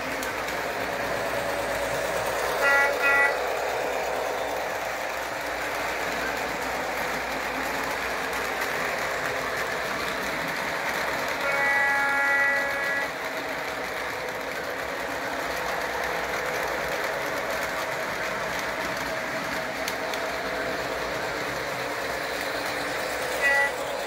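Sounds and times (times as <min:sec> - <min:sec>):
model trains rumbling on track: 0:00.0 - 0:24.0
locomotive sound system tone: 0:00.8 - 0:03.7, 0:11.4 - 0:13.2, 0:22.7 - 0:24.0.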